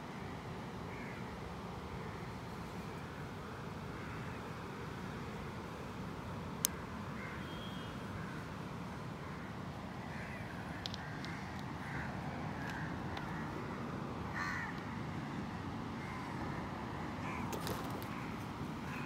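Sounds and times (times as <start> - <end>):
faint clicks: 10.8 - 11.7, 12.6 - 13.3.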